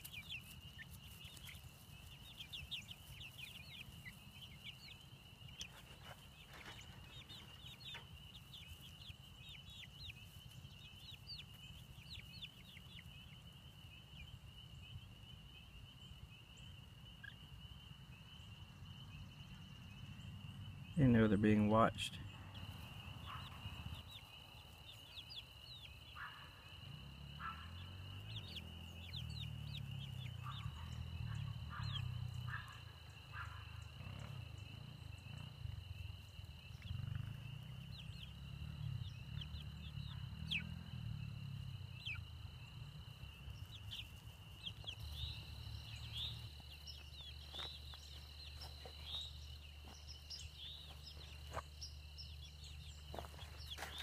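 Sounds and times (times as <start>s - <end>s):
chicks peeping: 0.0s - 54.0s
insect drone: 22.3s - 54.0s.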